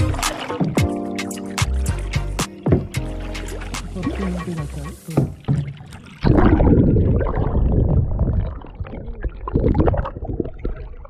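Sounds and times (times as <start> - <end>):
muffled underwater gurgling: 3.9 - 11.0.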